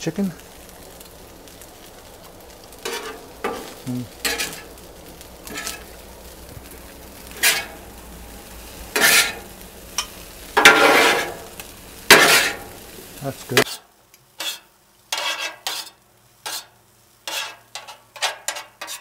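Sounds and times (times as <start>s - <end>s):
food sizzling: 0.0s - 19.0s
metal spatula scraping a griddle: 2.8s - 4.8s, 5.4s - 6.0s, 7.2s - 7.9s, 8.7s - 12.8s, 13.5s - 19.0s.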